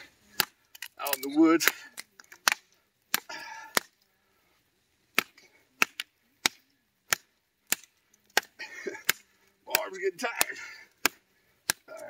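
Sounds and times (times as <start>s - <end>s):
chopping knife striking wood: 5.2s - 11.9s.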